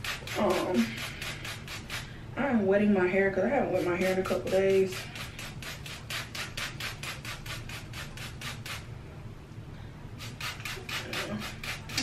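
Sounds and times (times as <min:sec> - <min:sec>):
spray bottle squirts: 0:04.9 - 0:08.8, 0:10.2 - 0:12.0.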